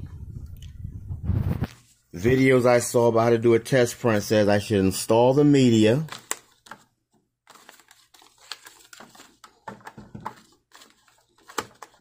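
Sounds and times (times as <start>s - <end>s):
plastic clicks and knocks: 9.4s - 10.4s.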